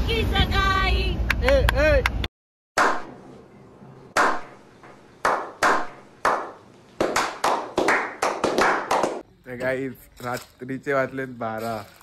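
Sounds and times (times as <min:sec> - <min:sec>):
hand claps: 0:04.2 - 0:04.5, 0:05.2 - 0:09.2
several people clapping: 0:05.2 - 0:09.3.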